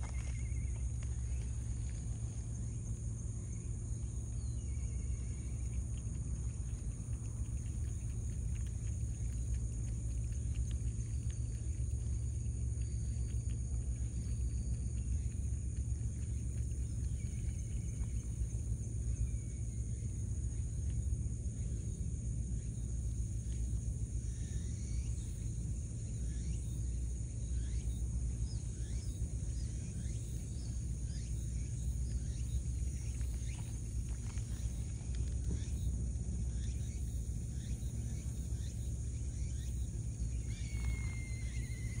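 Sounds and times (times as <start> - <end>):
faint ticks: 0.0 - 21.8, 31.1 - 42.0
high insect drone: 0.0 - 42.0
low steady rumble: 0.0 - 42.0
thin whistle-like tone: 38.6 - 42.0.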